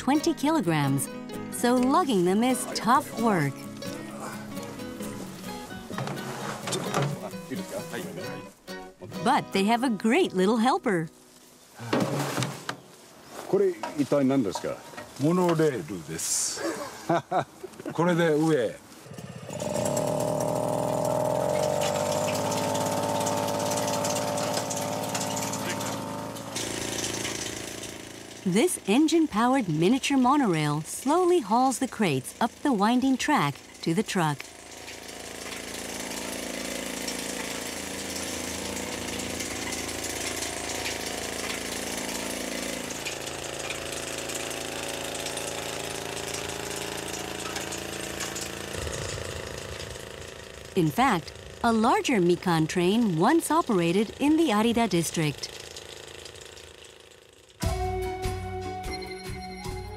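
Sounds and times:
small engine running: 0:00.0 - 0:08.6, 0:18.0 - 0:58.4
fast mechanical rattle: 0:19.1 - 0:28.5, 0:34.5 - 0:57.6.

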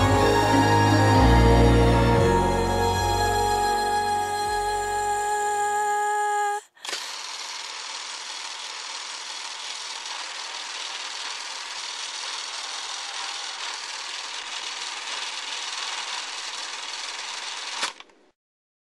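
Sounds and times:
music: 0:00.0 - 0:05.4.

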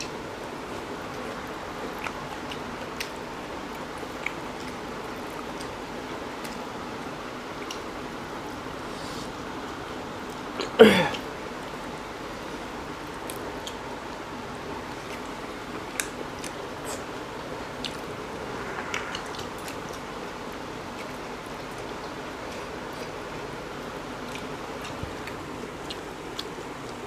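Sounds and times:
chewing and squishing food: 0:00.0 - 0:27.0
steady hiss: 0:00.0 - 0:27.0.

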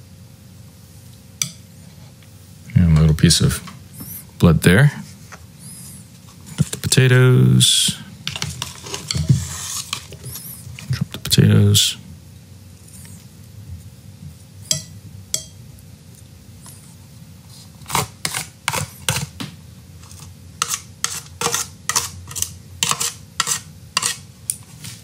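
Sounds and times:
chopsticks scraping foil tray: 0:07.8 - 0:11.0, 0:17.8 - 0:19.3, 0:20.0 - 0:25.0.

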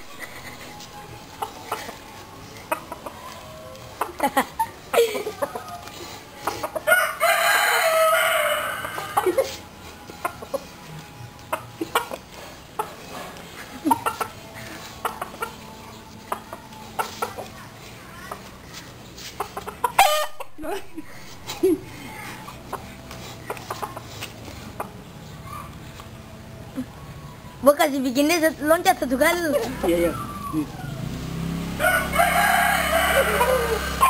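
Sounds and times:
chicken clucking: 0:00.1 - 0:07.1, 0:08.8 - 0:20.5, 0:21.6 - 0:25.8
rooster crowing: 0:06.9 - 0:09.4, 0:20.0 - 0:20.4, 0:30.1 - 0:34.0.

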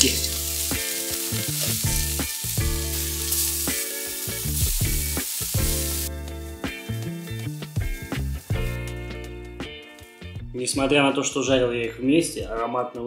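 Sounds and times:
spatula turning food in pan: 0:00.0 - 0:06.1
patties sizzling in hot oil: 0:00.0 - 0:10.3
background music: 0:00.0 - 0:13.0.

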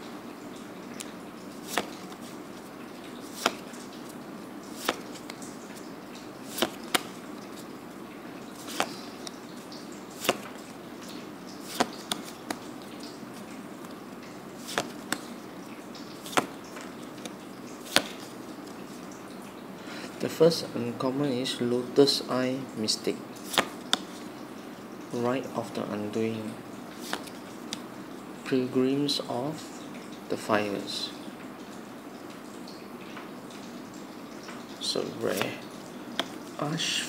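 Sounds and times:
trading cards snapping: 0:01.6 - 0:02.3, 0:03.3 - 0:03.7, 0:04.8 - 0:05.4, 0:06.5 - 0:07.2, 0:08.6 - 0:09.4, 0:10.2 - 0:10.5, 0:11.6 - 0:12.6, 0:14.6 - 0:15.3, 0:16.2 - 0:16.6, 0:17.2 - 0:18.3, 0:23.4 - 0:24.0, 0:27.0 - 0:27.8.

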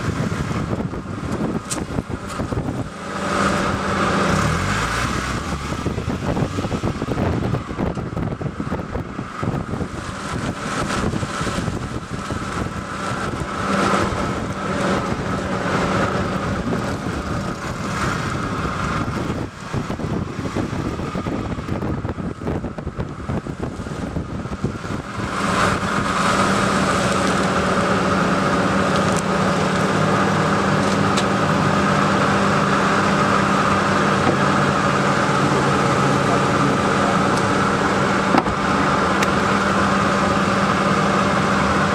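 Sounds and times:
tyres rumbling on concrete: 0:00.0 - 0:41.9
wind on microphone: 0:00.0 - 0:41.9.

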